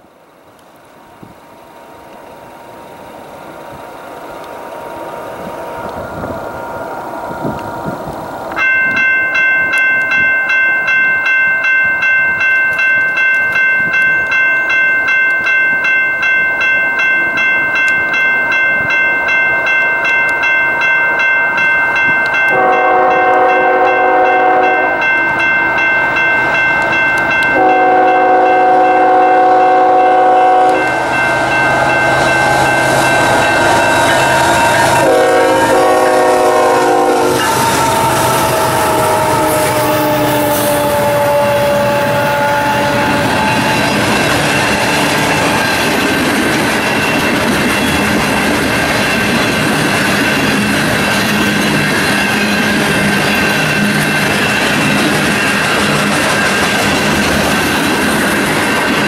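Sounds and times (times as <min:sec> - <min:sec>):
crossing warning bell ringing: 0:01.6 - 0:59.0
locomotives rumbling past: 0:22.1 - 0:59.0
locomotive horn blasts: 0:22.5 - 0:25.2, 0:27.4 - 0:44.1.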